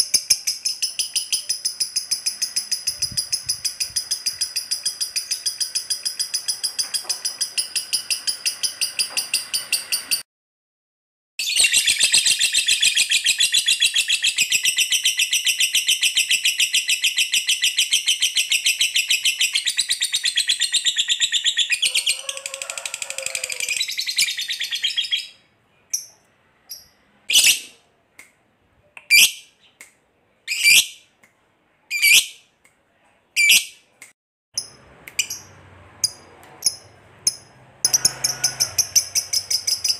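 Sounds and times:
lovebird chattering trill: 0:00.0 - 0:10.2, 0:34.6 - 0:39.9.

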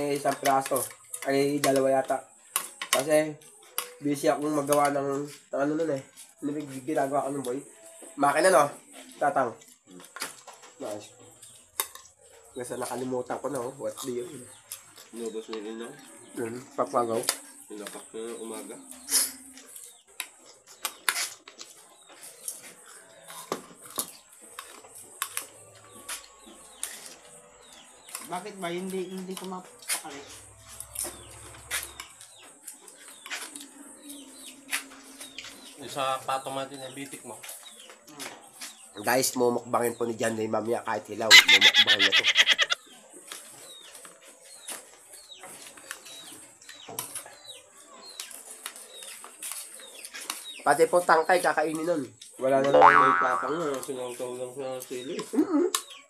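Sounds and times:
bird chirping: 0:41.2 - 0:56.0.

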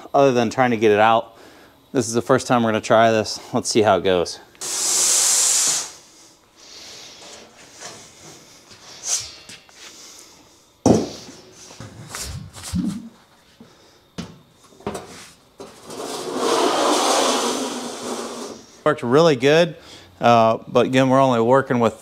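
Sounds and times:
sharp knocks: 0:10.8 - 0:11.2
metal sheet sliding across slats: 0:15.1 - 0:18.7
steel sheet scraping and flexing: 0:15.7 - 0:18.7.

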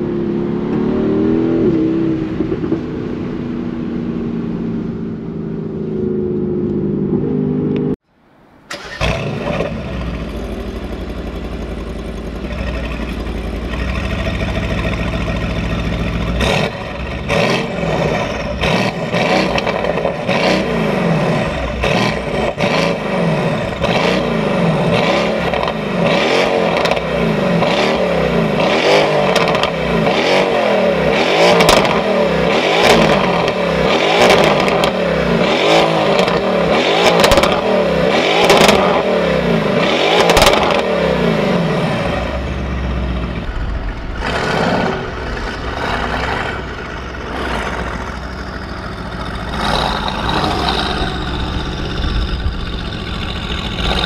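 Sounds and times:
car engine idling and revving: 0:00.0 - 0:08.0, 0:08.7 - 0:54.0
exhaust pops and crackles: 0:29.2 - 0:30.2, 0:31.5 - 0:32.0, 0:34.2 - 0:35.0, 0:37.0 - 0:37.7, 0:38.4 - 0:39.0, 0:40.2 - 0:40.8, 0:43.3 - 0:54.0.

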